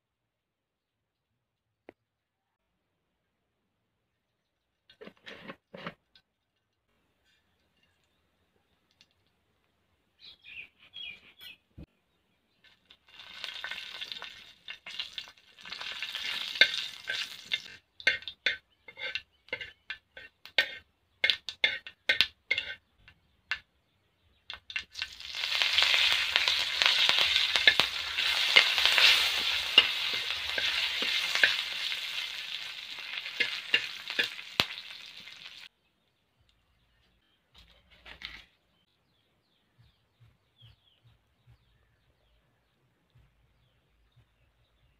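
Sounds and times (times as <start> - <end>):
spices crackling in hot oil: 12.6 - 23.6, 24.4 - 35.7
loud steady sizzle: 12.7 - 18.3, 24.6 - 35.7
metal spatula stirring: 13.1 - 23.1, 24.6 - 35.6.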